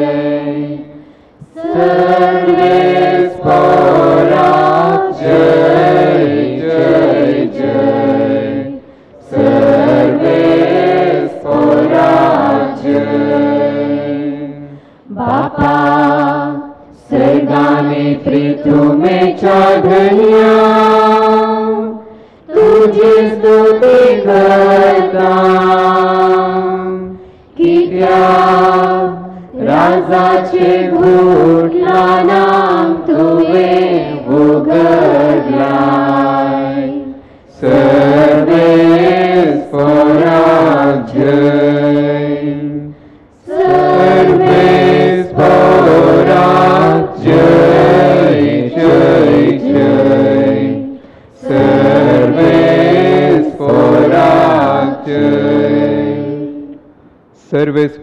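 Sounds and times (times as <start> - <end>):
choir singing a hymn: 0.0 - 57.0.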